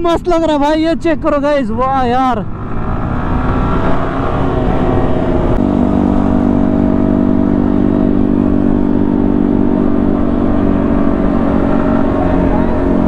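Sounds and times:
motorcycle engine cruising: 0.0s - 13.0s
wind rushing: 1.9s - 13.0s.

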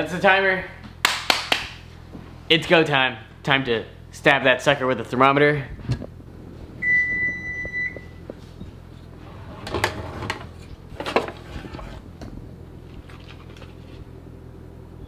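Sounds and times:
drawer rummaged through: 9.2s - 12.1s.

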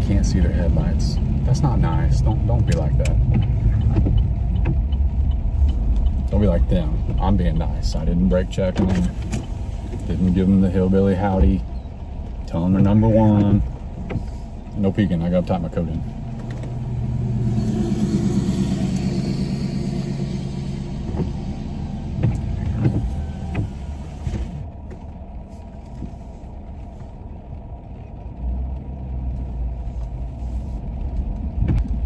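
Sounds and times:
truck engine hum: 0.0s - 32.0s.

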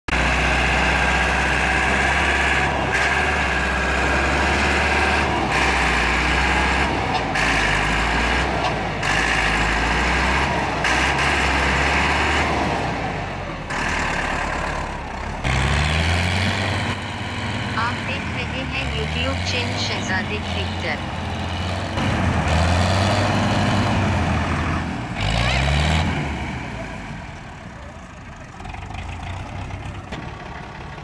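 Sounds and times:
tractor diesel engine labouring: 0.1s - 31.0s.

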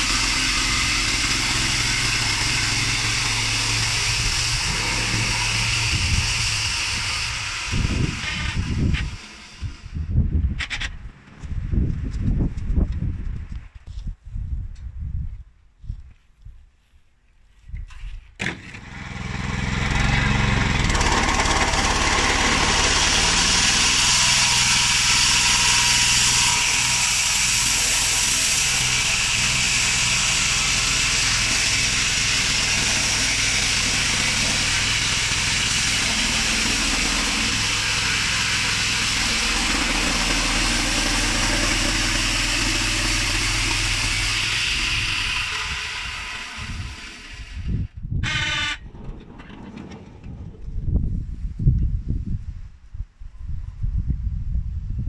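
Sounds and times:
band sawmill sawing log: 0.0s - 10.0s, 18.4s - 50.6s.

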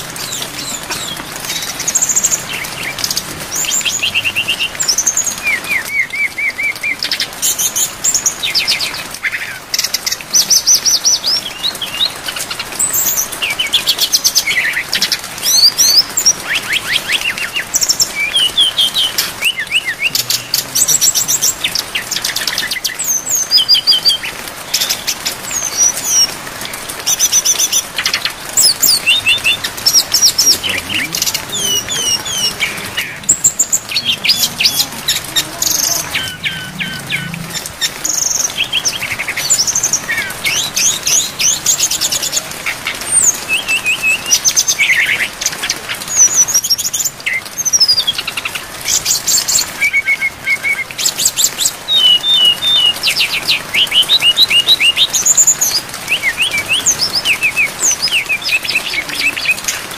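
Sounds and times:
rain falling: 0.0s - 59.9s
bird singing whistles and trills: 10.4s - 26.3s, 27.1s - 34.9s, 43.1s - 45.2s, 49.0s - 59.6s.

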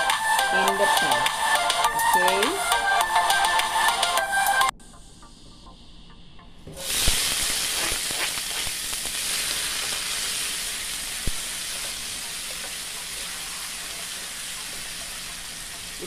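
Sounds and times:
vegetables sizzling in hot oil: 6.7s - 16.0s.

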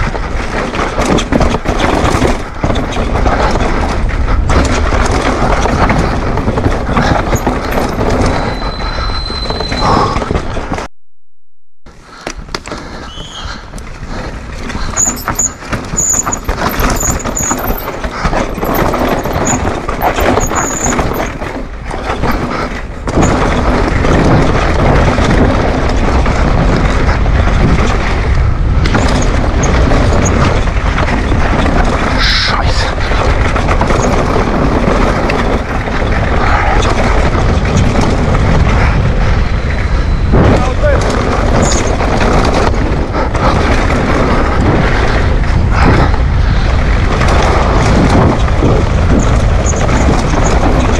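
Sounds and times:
bike rattling: 0.0s - 10.9s, 12.0s - 50.9s
high squeaks: 7.3s - 10.2s, 14.9s - 17.9s
wind on microphone: 12.1s - 50.9s.

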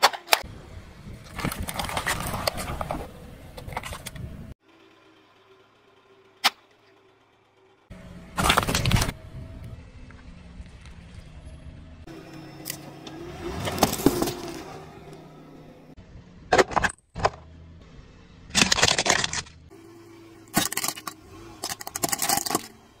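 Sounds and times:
tyre crushing plastic objects: 8.4s - 9.1s, 18.5s - 19.6s, 20.5s - 22.8s.

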